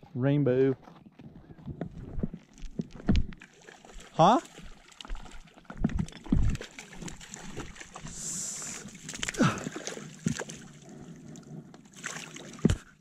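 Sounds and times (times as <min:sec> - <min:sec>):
fish splashing in water: 0:03.3 - 0:13.0.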